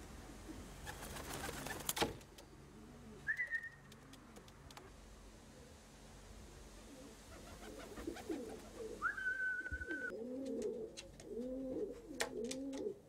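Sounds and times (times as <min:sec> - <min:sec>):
pigeons cooing: 0:02.6 - 0:04.7, 0:06.8 - 0:13.0.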